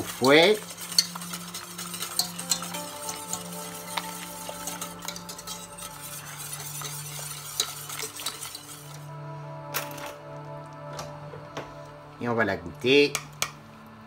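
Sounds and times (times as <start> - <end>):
spoon clinking against pan: 0.0 - 8.9
induction hob hum: 0.0 - 14.0.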